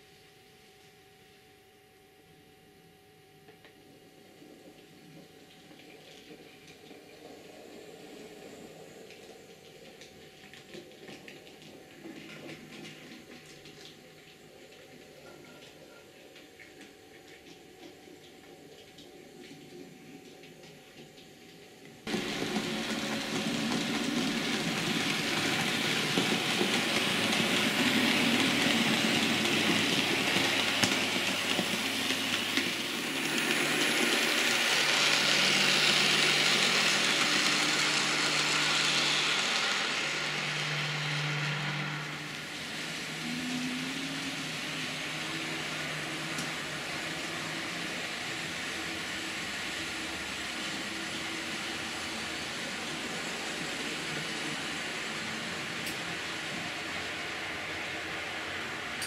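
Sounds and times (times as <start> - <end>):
low motor hum: 22.1 - 50.8
model train wheels rushing on track: 22.1 - 59.0.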